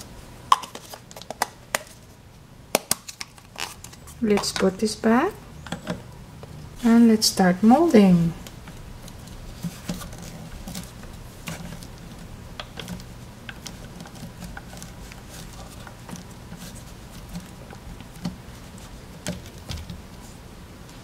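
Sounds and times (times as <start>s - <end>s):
fingers squishing modelling clay: 7.6s - 21.0s.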